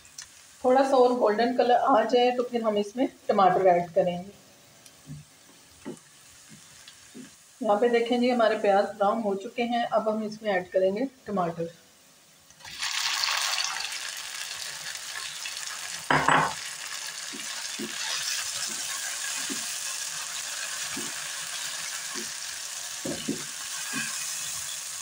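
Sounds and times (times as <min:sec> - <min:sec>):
vegetables sizzling in oil: 0:00.0 - 0:10.6, 0:12.1 - 0:25.0
spatula clatter: 0:23.0 - 0:24.8.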